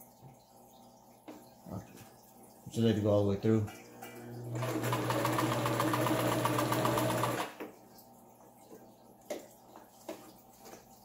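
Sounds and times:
sewing machine stitching: 4.5 - 7.6.

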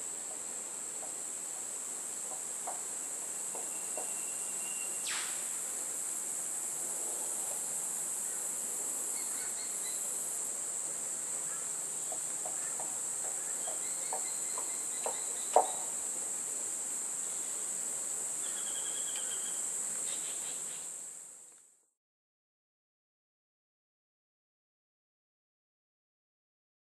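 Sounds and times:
high-pitched insect chorus: 0.0 - 21.5
faint bird chirps: 3.6 - 5.5, 18.4 - 20.9.

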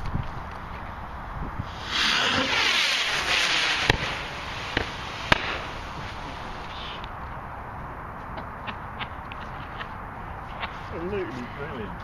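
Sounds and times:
firework rockets whooshing: 0.8 - 7.6
firework bangs: 1.6 - 7.5.

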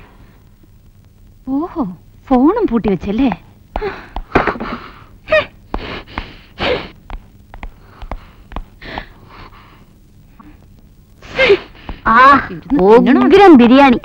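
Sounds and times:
woman breathing sharply and gasping: 7.7 - 9.9.

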